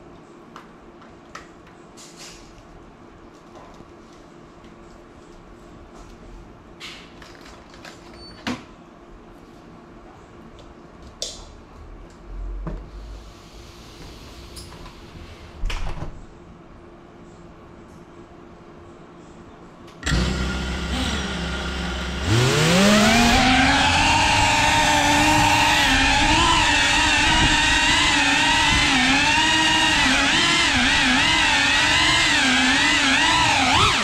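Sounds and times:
quadcopter motors whining: 20.0s - 34.0s.

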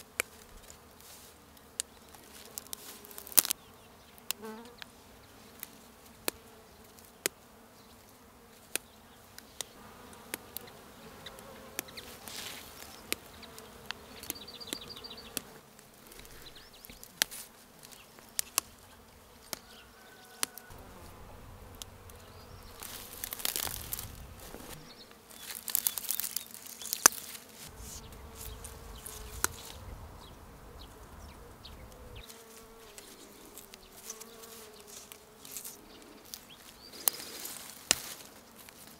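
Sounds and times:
flowers and grass rustling: 0.0s - 7.2s, 11.4s - 38.9s
flying insect buzzing: 0.0s - 38.9s
plant stems snapping: 2.6s - 3.6s, 16.9s - 18.8s, 21.7s - 24.8s, 25.4s - 28.0s, 29.0s - 29.8s, 35.0s - 38.8s.

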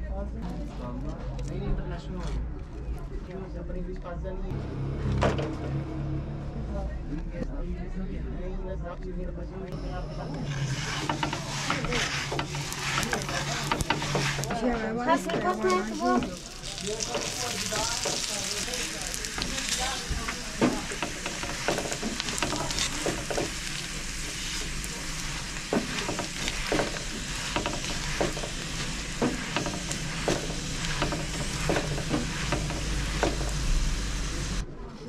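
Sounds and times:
food sizzling in hot oil: 10.4s - 34.6s
utensil scraping a pan: 10.4s - 34.6s.

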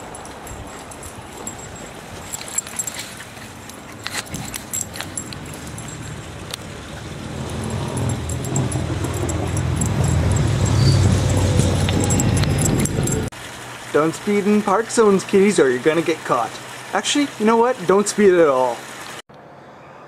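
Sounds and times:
scattered clicks and rustles: 0.0s - 6.6s
motor vehicle engine rumble: 0.0s - 13.7s.

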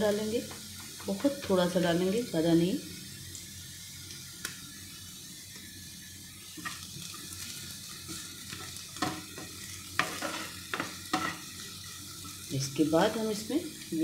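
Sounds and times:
vegetables sizzling in oil: 0.0s - 14.0s
spatula scraping and knocking pan: 8.1s - 11.6s.

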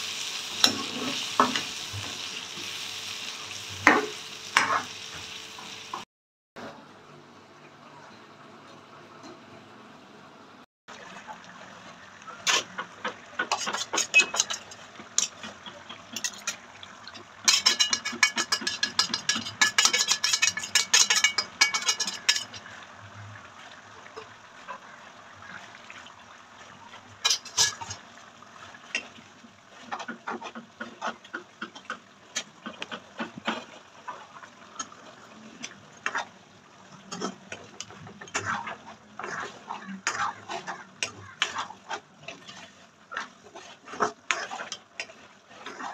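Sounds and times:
metal ladle scraping pan: 0.5s - 2.3s, 13.4s - 16.6s, 17.4s - 22.8s, 27.2s - 28.0s, 37.0s - 45.9s.

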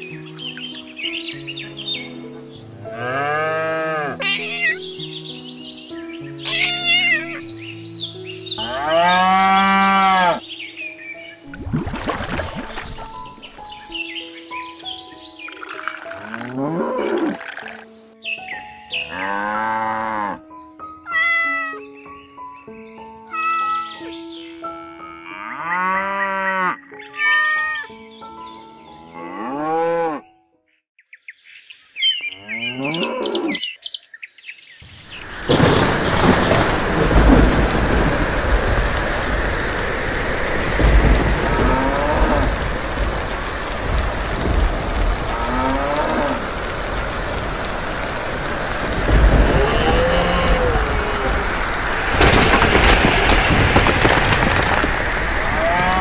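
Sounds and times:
cows mooing: 2.8s - 4.2s, 8.6s - 10.4s, 16.3s - 17.4s, 19.1s - 20.4s, 29.1s - 30.3s, 32.5s - 33.6s, 41.4s - 42.6s, 45.2s - 46.4s, 49.3s - 51.5s, 55.5s - 56.0s
heavy rain: 34.9s - 56.0s
low thunder rumbles: 35.2s - 56.0s.

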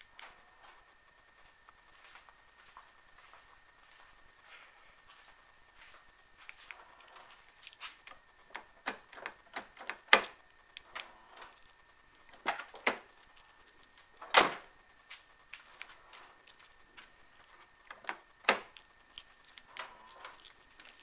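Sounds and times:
car door lock actuators clunking: 14.2s - 14.6s.

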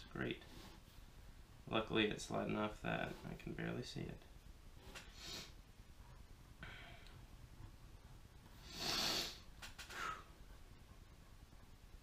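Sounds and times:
man breathing through nose: 4.9s - 5.6s, 8.6s - 10.3s.

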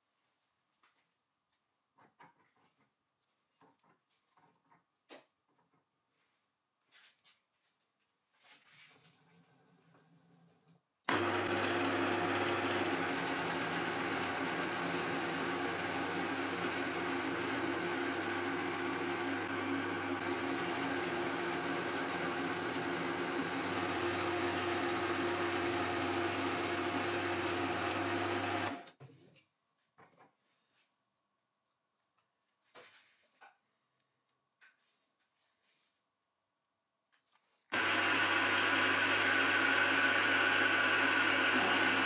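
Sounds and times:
milling machine hum: 11.1s - 28.8s, 37.7s - 42.0s
mill cutting metal: 11.1s - 28.9s.

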